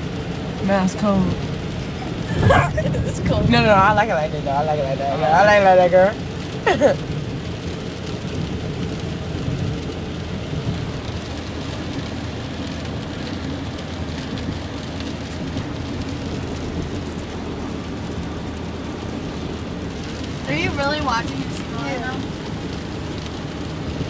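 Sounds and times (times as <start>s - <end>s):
car engine low: 0.0s - 24.0s
road noise: 0.0s - 24.0s.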